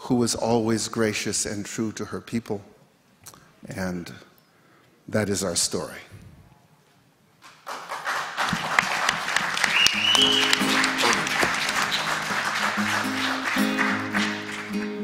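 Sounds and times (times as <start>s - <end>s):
audience applauding: 7.5s - 15.0s
classical guitar picking: 9.9s - 15.0s.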